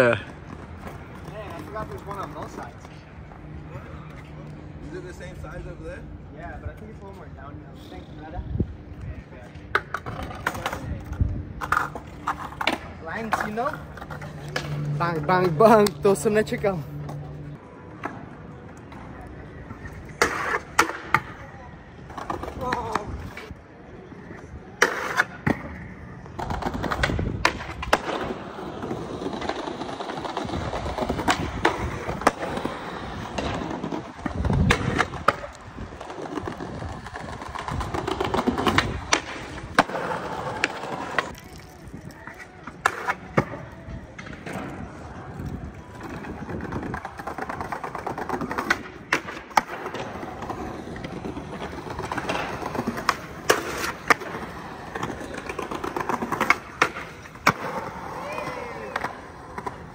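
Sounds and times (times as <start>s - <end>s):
skateboard wheels rolling on concrete: 0.0s - 59.9s
skateboard tricks clacking: 20.1s - 21.4s, 26.4s - 41.4s, 45.9s - 59.9s.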